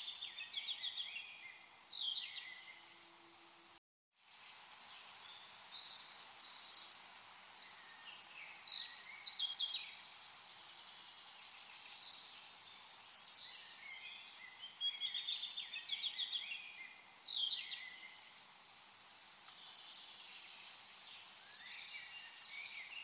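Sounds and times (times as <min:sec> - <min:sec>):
steady background hiss: 0:00.0 - 0:23.0
birds chirping: 0:04.8 - 0:23.0.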